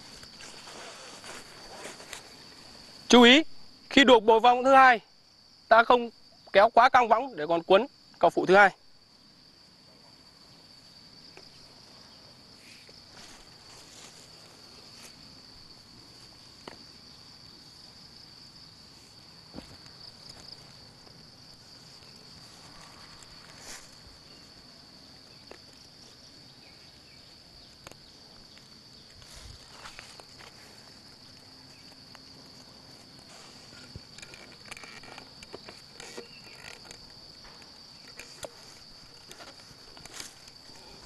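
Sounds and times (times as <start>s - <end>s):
cord and tarp rustling: 0.0s - 2.8s, 12.9s - 15.4s, 19.0s - 24.7s, 29.0s - 41.0s
faint insects trilling: 0.0s - 41.0s.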